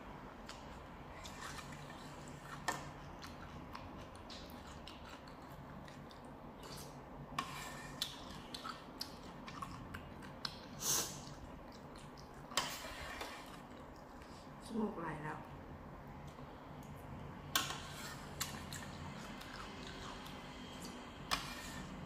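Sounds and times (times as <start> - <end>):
chewing: 0.4 - 7.0, 7.9 - 12.6, 13.2 - 14.4, 17.6 - 21.0
person slurping soup: 17.6 - 20.3.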